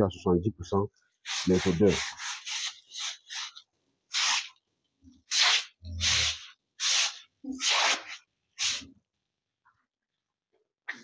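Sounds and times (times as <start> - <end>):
broom swishing water on concrete: 1.2 - 9.0.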